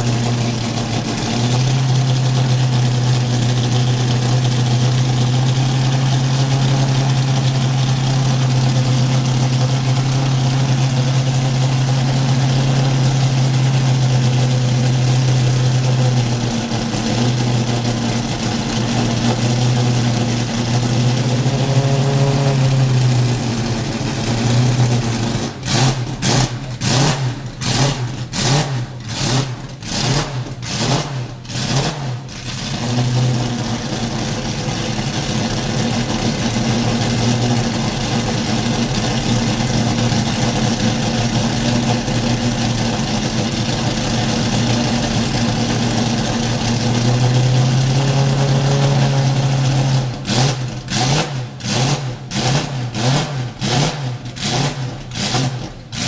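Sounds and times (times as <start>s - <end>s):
car engine idling: 0.0s - 56.0s
engine throttle blips: 6.5s - 33.6s.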